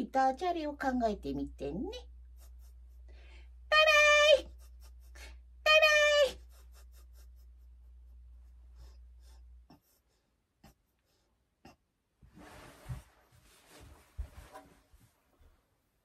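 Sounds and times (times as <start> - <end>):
clothing rustling: 12.2 - 16.0.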